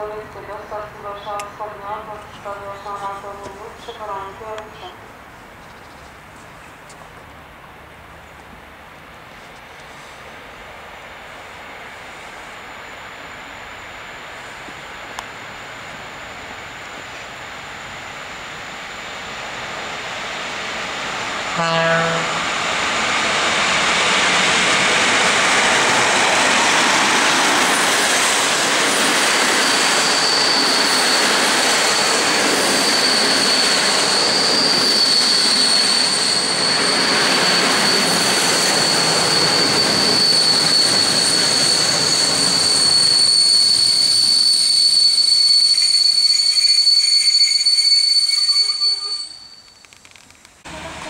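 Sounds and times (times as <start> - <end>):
high brake squeal: 29.4 - 50.0.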